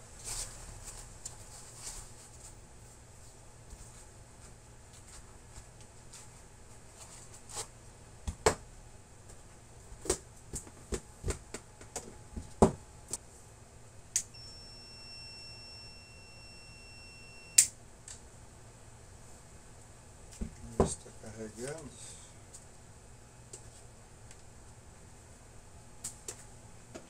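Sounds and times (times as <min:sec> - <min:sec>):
steady high-pitched beep: 0:14.4 - 0:17.6.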